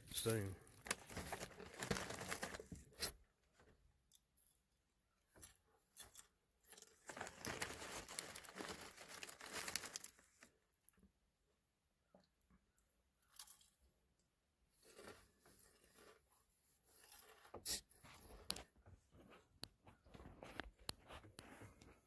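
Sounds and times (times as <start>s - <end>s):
snack wrapper tearing and crinkling: 0.6s - 3.1s, 6.0s - 10.5s.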